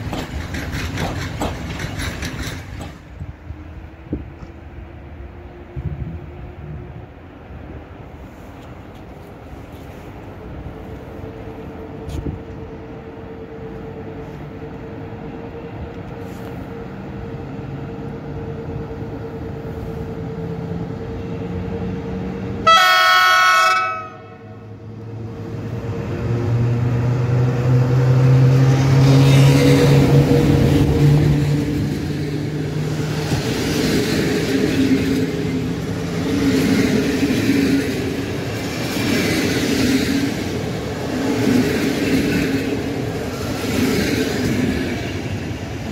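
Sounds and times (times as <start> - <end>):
train wheels clattering on rails: 0.0 - 3.7, 28.6 - 45.9
locomotive humming past: 0.0 - 45.9
train horn blast: 22.6 - 24.6.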